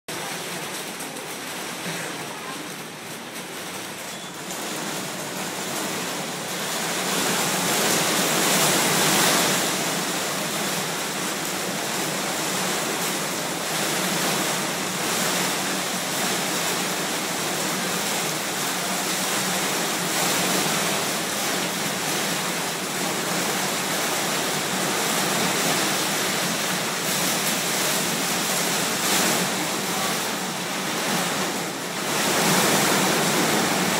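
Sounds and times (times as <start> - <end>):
heavy rain hissing: 0.1 - 33.9.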